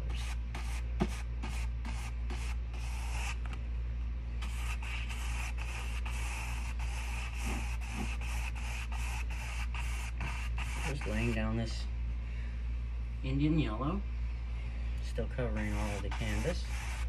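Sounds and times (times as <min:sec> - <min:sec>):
brush scrubbing canvas: 0:00.0 - 0:03.4, 0:04.4 - 0:11.5, 0:15.4 - 0:17.0
steady low hum: 0:00.0 - 0:17.0.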